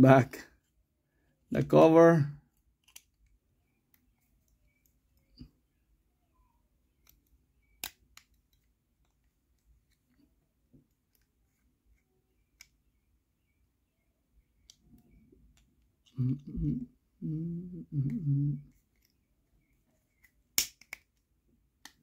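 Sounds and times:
low humming: 16.2s - 18.6s.

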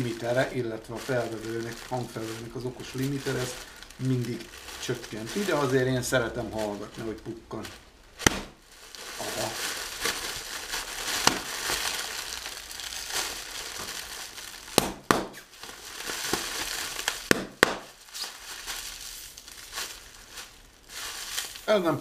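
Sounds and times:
plastic bag crinkling: 0.0s - 22.0s
plastic bag bursting cracks: 6.6s - 21.7s.

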